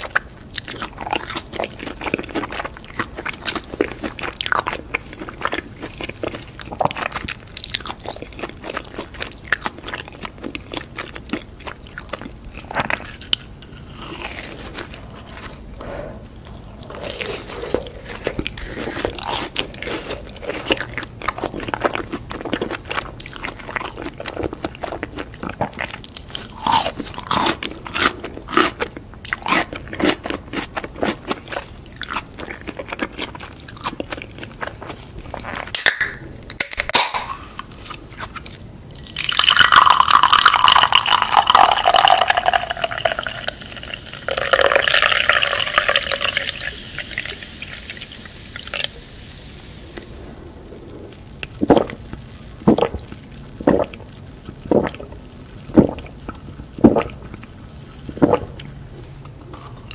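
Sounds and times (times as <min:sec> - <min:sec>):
crunching and chewing snacks: 0:00.0 - 0:15.8, 0:16.4 - 0:46.7.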